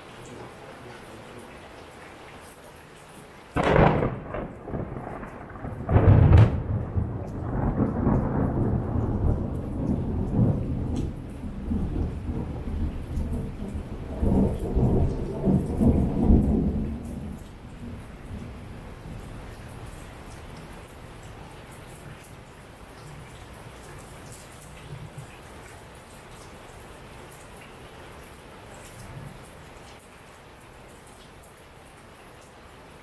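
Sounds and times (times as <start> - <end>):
heavy rain hiss: 0.0 - 33.0
thunder crashing and rumbling: 3.6 - 20.0.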